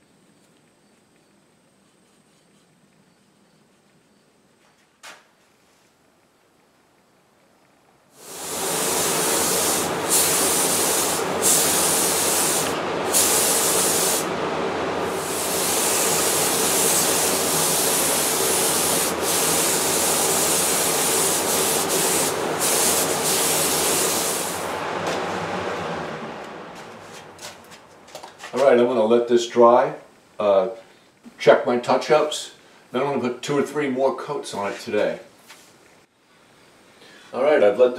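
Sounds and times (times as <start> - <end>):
spray gun hissing: 8.2 - 25.0
steady hum: 8.2 - 29.0.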